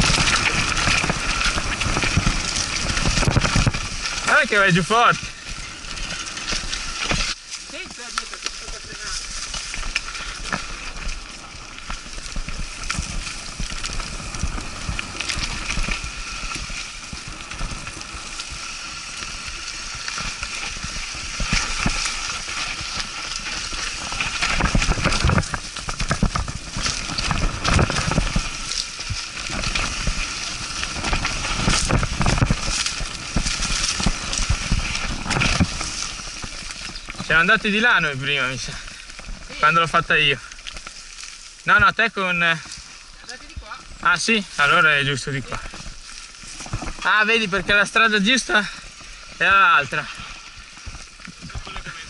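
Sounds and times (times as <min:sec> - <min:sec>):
bike rattling over bumps: 0:00.0 - 0:52.0
bike tyres crunching on dirt: 0:00.0 - 0:52.0.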